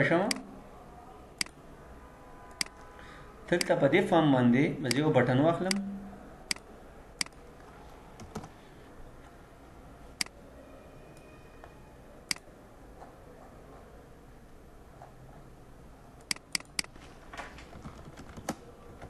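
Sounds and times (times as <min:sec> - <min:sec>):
mouse and keyboard clicks: 0:16.2 - 0:17.0.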